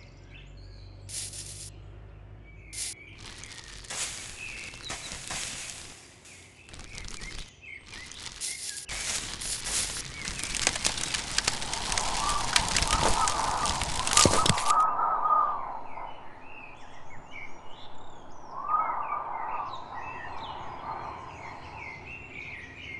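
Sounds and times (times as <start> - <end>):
birds chirping and warbling: 0.0 - 22.9
dense rustling crackling noise: 1.1 - 1.7, 2.8 - 14.8.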